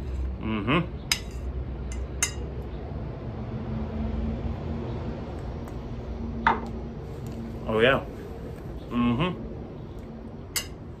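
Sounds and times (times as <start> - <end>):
metal fork clinking on plate: 10.6 - 10.8.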